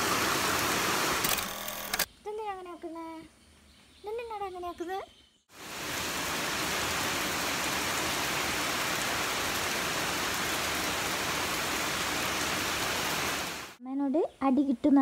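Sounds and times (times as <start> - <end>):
heavy rain falling: 0.0 - 1.2, 5.5 - 13.8.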